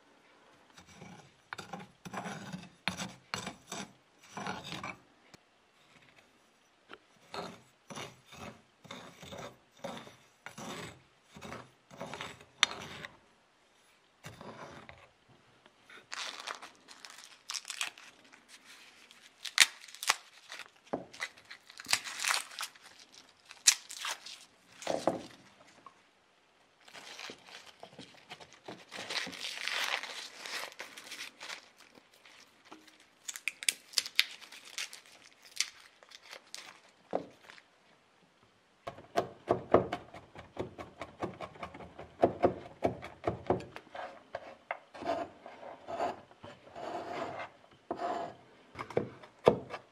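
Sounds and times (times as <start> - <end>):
garlic skins crackling and tearing: 16.0 - 25.4, 26.8 - 37.6.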